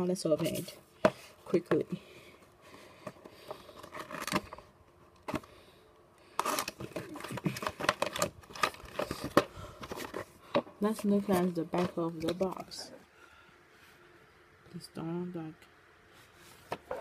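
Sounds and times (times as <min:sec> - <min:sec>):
cardboard scraping and rustling: 0:00.3 - 0:01.4, 0:03.1 - 0:05.5, 0:06.4 - 0:12.9.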